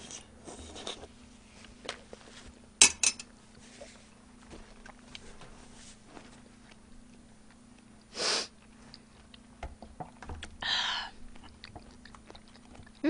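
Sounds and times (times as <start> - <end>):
low steady hum: 0.0 - 13.0
sharp sniff: 8.1 - 8.5.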